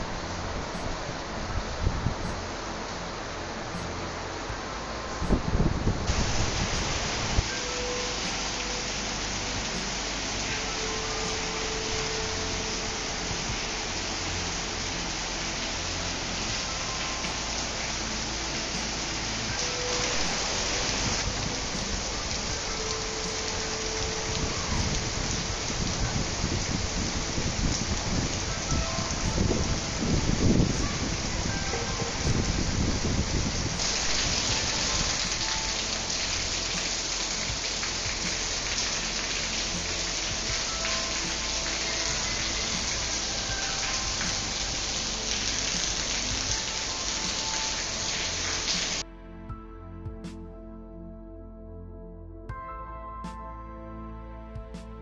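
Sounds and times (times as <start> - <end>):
steady hiss: 0.0 - 49.0
rain falling steadily: 0.0 - 49.1
soft calm music: 0.0 - 55.0.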